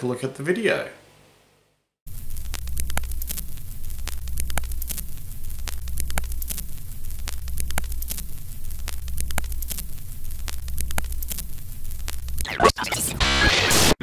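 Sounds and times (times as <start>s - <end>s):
static crackle: 2.1s - 14.0s.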